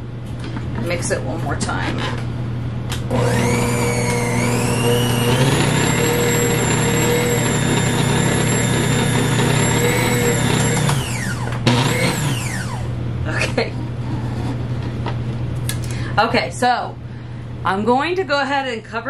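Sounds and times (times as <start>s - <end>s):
stand mixer motor whine: 3.0s - 13.0s.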